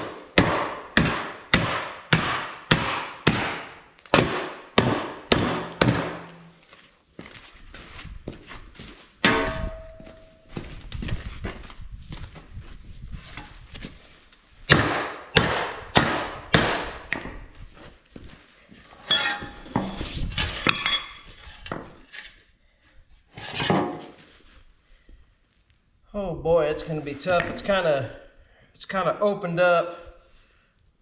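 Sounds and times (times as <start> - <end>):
sledgehammer striking sheet steel: 0.0 - 6.6, 9.2 - 10.4, 14.7 - 17.1
metal clanking: 9.2 - 10.4, 19.0 - 21.4.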